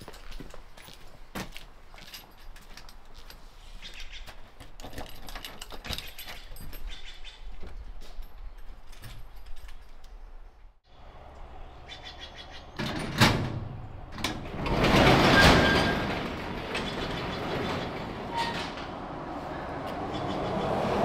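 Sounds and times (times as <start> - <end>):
garage door latch clack: 12.8 - 19.0
garage door rattling rumble: 12.8 - 19.4.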